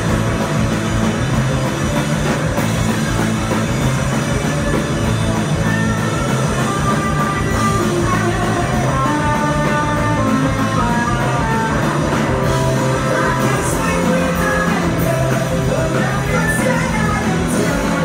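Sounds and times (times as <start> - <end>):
rock band playing: 0.0 - 18.0
woman singing into a microphone: 13.0 - 18.0.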